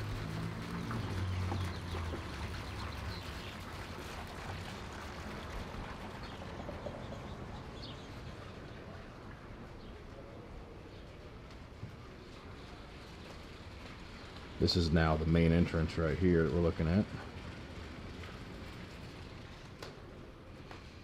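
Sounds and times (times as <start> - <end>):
diesel engine drone: 0.0 - 9.2
train rumble: 4.0 - 21.0.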